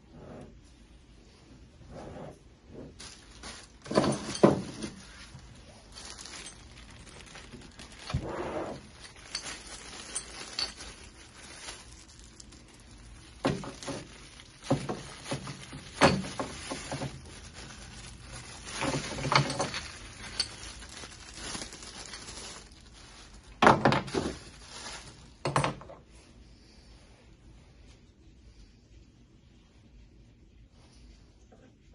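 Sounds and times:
plastic bag rustling: 2.0s - 25.9s
metal parts clinking: 3.6s - 5.2s, 5.9s - 8.1s, 8.7s - 12.7s, 13.3s - 22.7s.

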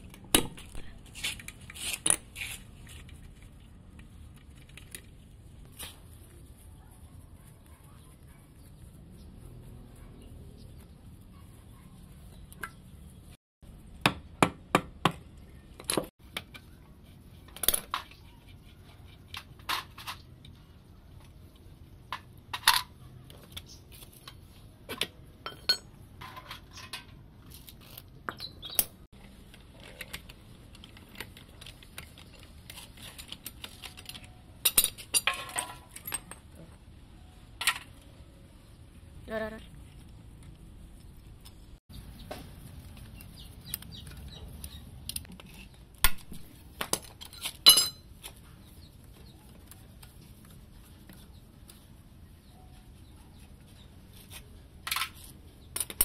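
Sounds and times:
metal tools clinking and knocking: 25.4s - 27.2s, 31.1s - 36.8s, 46.9s - 48.1s.

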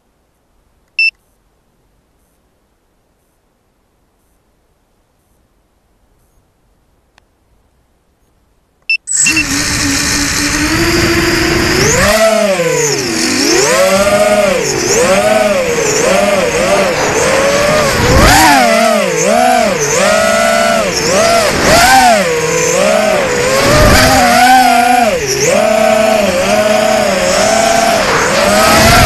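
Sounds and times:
short beep: 8.9s - 9.5s
quadcopter motors whining: 9.1s - 29.0s.

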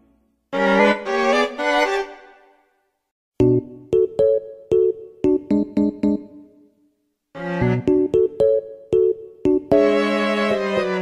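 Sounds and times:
piano-like keyboard chords: 3.4s - 6.5s, 7.6s - 11.0s.

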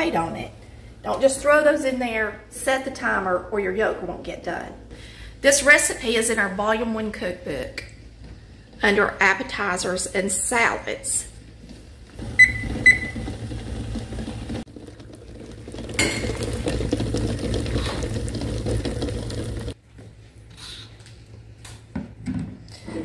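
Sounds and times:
water boiling in a saucepan: 11.0s - 19.8s.

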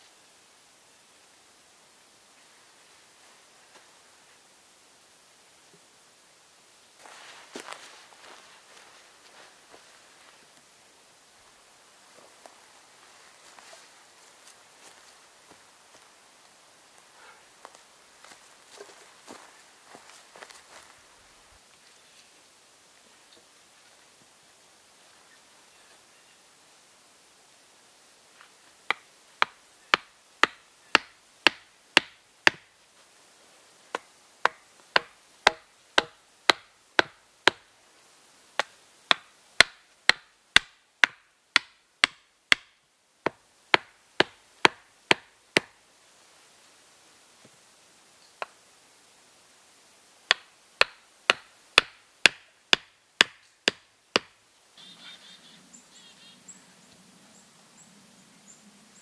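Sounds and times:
hatchet pounding wooden stakes: 28.9s - 32.7s, 34.0s - 37.6s, 38.6s - 42.7s, 43.3s - 45.7s, 50.3s - 54.4s.

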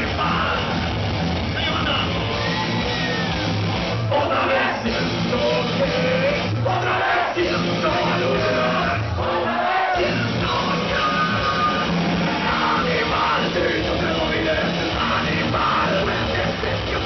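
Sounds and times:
singer shouting and singing: 0.0s - 3.3s, 3.9s - 17.0s
live rock band playing: 0.0s - 17.0s.

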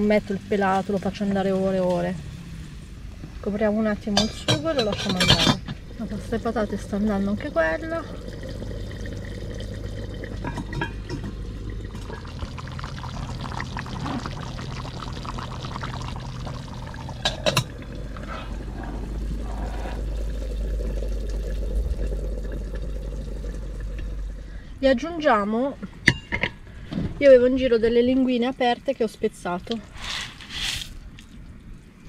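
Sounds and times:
pots bubbling on gas stove: 0.0s - 25.0s.

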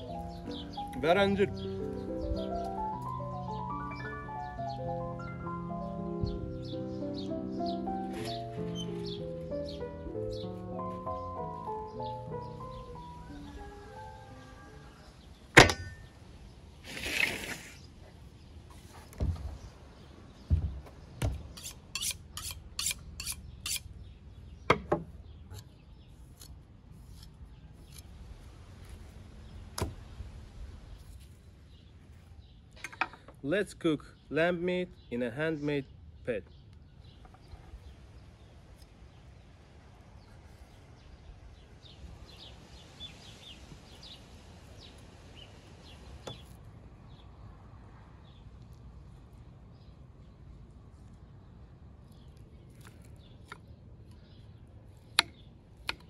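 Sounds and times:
small birds chirping: 0.0s - 56.0s
low outdoor rumble: 9.0s - 34.1s
knife sharpening strokes: 21.6s - 23.9s.

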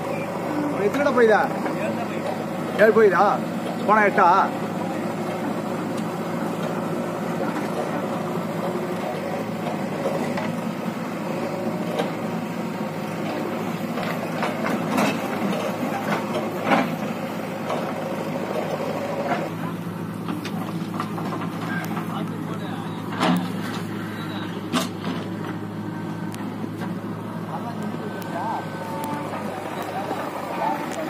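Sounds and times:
diesel engines running: 0.0s - 31.0s
loader bucket clanks and thuds: 23.0s - 23.9s, 24.7s - 25.6s.

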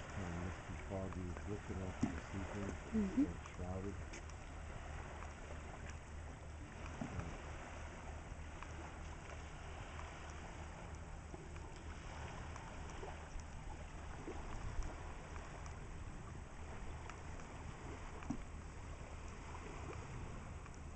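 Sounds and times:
rushing tidal water: 0.0s - 20.9s
faint clicks: 0.7s - 2.8s, 3.4s - 4.5s, 8.4s - 13.9s, 16.8s - 18.6s, 19.2s - 20.9s.

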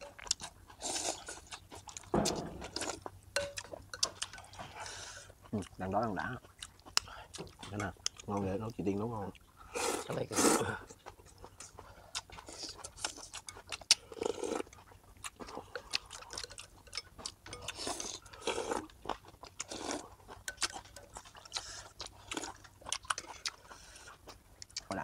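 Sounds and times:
slurping and chewing: 0.0s - 25.0s
chopsticks clicking on ceramic bowls: 3.4s - 4.4s.

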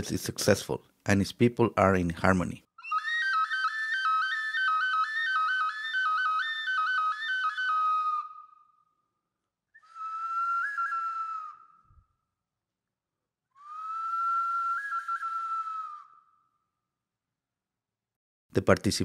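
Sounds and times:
solo flute: 2.8s - 12.4s, 13.5s - 16.8s.

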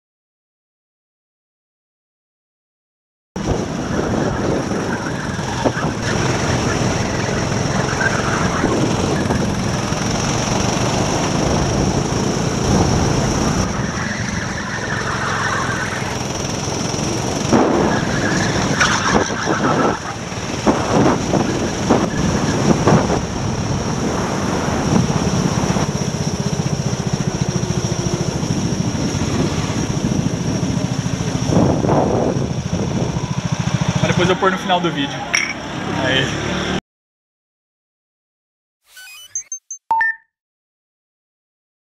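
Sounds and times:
go-kart engine running hard: 3.4s - 36.8s.

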